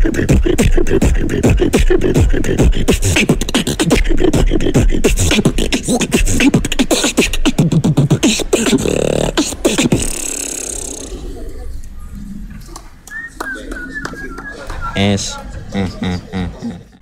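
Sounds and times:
person beatboxing: 0.0s - 11.4s
buzzing pitched hum: 0.0s - 12.7s.

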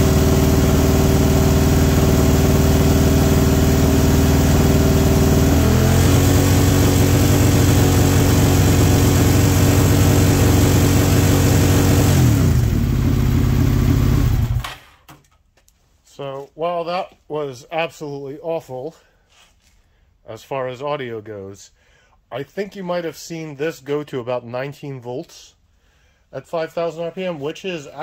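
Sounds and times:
motorcycle engine at high idle: 0.0s - 14.7s.

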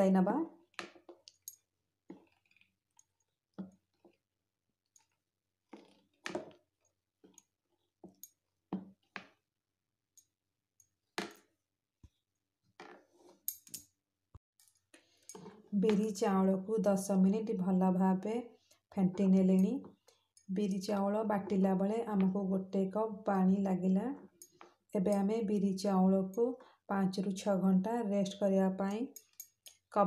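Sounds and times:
spatula stirring wet batter: 0.6s - 9.5s.

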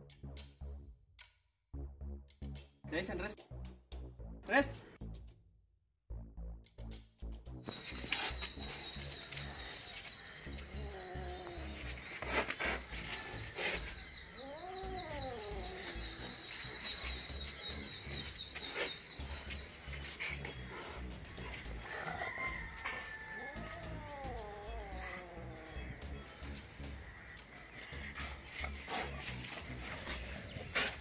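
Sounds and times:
animal calls rising and falling: 7.9s - 17.6s, 21.8s - 26.6s.

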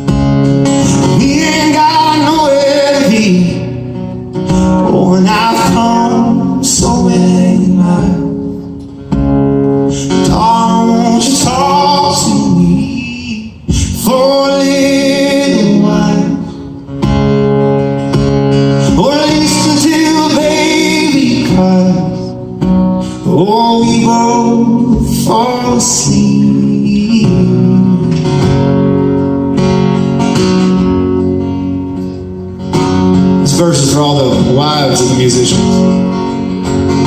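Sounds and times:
strummed acoustic guitars: 0.0s - 37.0s
person singing: 0.8s - 3.9s, 4.5s - 8.8s, 9.9s - 16.8s, 18.7s - 22.5s, 23.1s - 28.6s.

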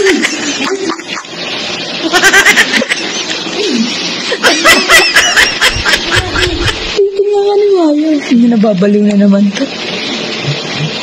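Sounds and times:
woman laughing: 0.0s - 1.4s, 2.0s - 7.0s.

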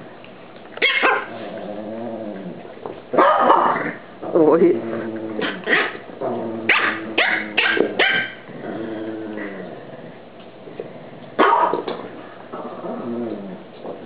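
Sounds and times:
dog barking sharply: 0.8s - 1.3s, 3.2s - 3.7s, 6.7s - 8.4s, 11.4s - 11.8s
dogs growling: 1.1s - 14.0s.

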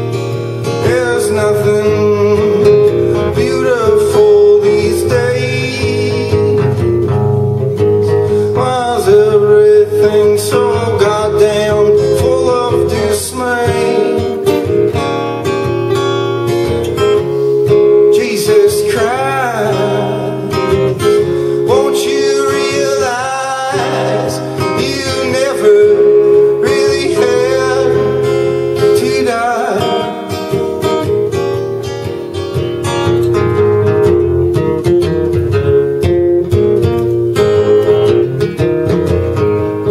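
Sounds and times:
strummed acoustic guitar: 0.0s - 39.9s
man singing: 0.6s - 6.8s, 8.0s - 14.6s, 17.9s - 30.9s.

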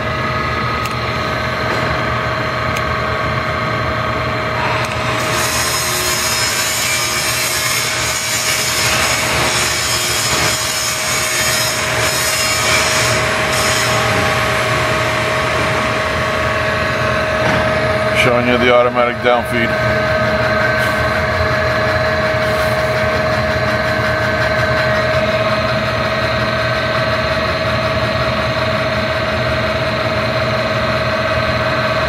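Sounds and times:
drill motor humming: 4.4s - 28.1s
drill boring into wood: 4.6s - 15.9s.

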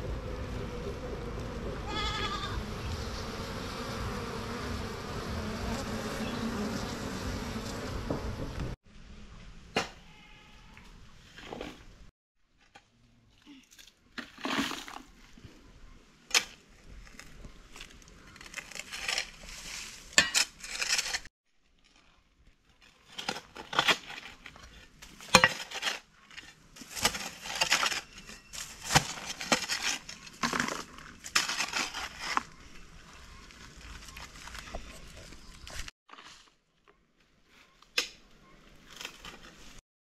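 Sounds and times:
metal tool scraping stony soil: 16.3s - 33.0s.

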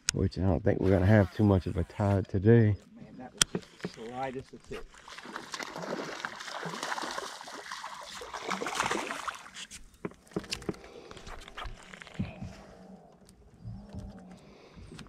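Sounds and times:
fish splashing at water surface: 4.9s - 9.8s.

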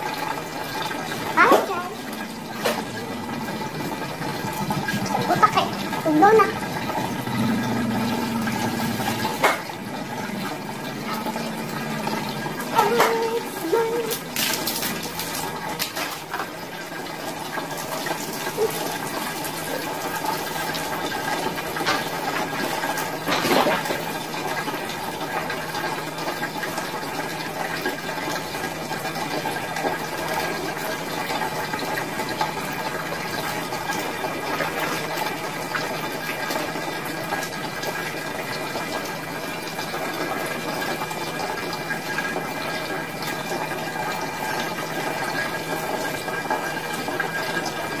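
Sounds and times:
water running: 0.0s - 48.0s
water splash: 14.1s - 16.4s.

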